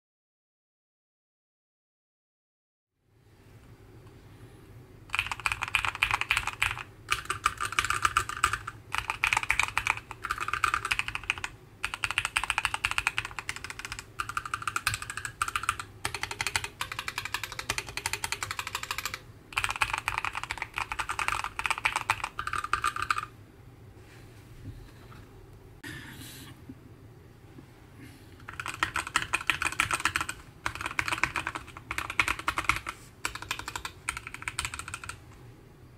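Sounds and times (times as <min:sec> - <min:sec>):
mechanical keyboard typing: 0:05.1 - 0:23.3, 0:28.4 - 0:35.3.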